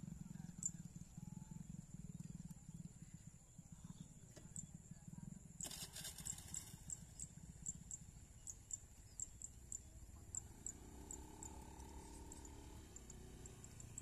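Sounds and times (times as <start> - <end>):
scooter engine running: 0.0 - 14.0
faint high ticks: 5.6 - 14.0.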